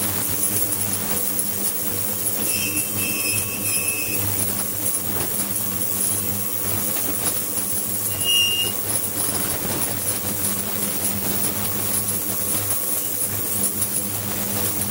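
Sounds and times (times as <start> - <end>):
equipment humming: 0.0 - 14.9
high squealing tone: 2.4 - 4.4, 8.1 - 8.8.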